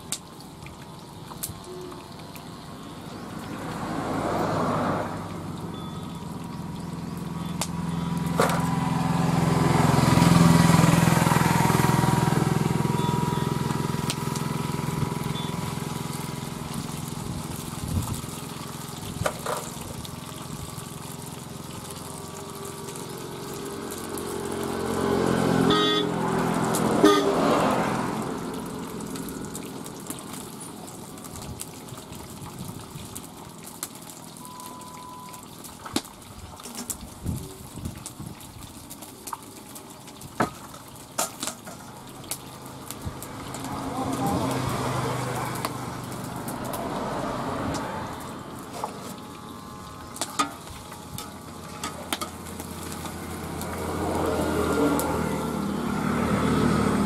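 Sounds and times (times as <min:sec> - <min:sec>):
vehicles passing: 0:00.0 - 0:37.9, 0:38.9 - 0:57.0
oil sizzling: 0:00.0 - 0:57.0
vehicle horn: 0:25.6 - 0:26.3, 0:27.0 - 0:27.6.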